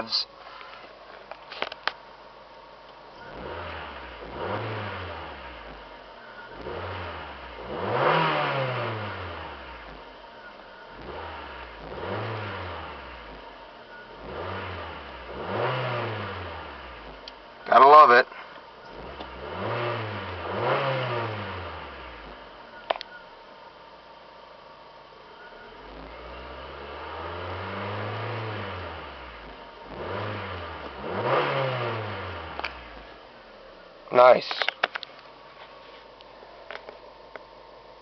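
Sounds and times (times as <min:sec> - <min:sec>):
car engine revving: 0:03.2 - 0:22.8, 0:25.6 - 0:33.8.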